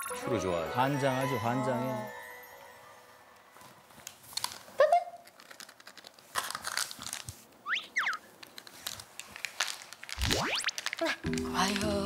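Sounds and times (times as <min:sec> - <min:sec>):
treat packet crinkling: 0:04.1 - 0:12.0
high squeaky chirps: 0:07.6 - 0:08.3.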